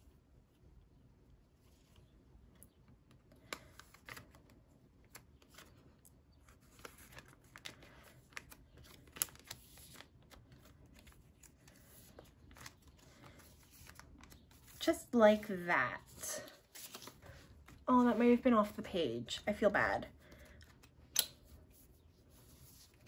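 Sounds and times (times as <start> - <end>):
faint clicks and plastic rustles: 1.6 - 14.8.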